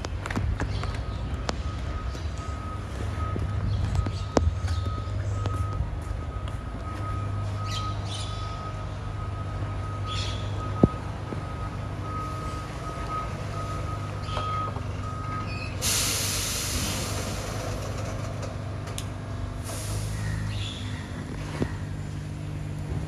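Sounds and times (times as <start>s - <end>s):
back-up alarm beeping: 1.0s - 16.6s
air brake hiss: 15.8s - 17.7s, 19.6s - 20.5s.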